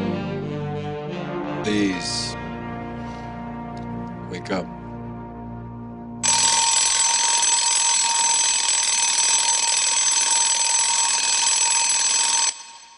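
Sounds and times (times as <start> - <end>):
alarm bell ringing: 6.2 - 12.9.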